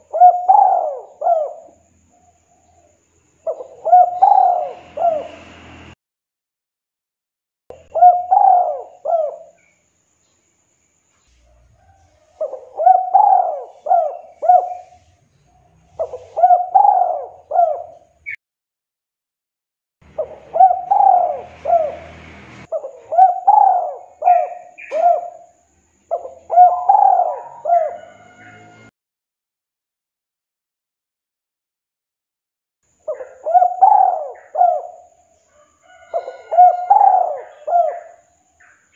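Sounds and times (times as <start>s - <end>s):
dove cooing: 0.0s - 5.4s, 7.7s - 9.6s, 11.5s - 18.2s, 20.0s - 28.9s, 33.1s - 38.3s.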